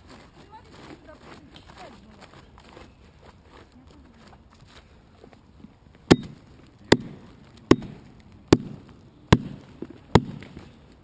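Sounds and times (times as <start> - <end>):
axe chopping into log: 6.1 - 10.6.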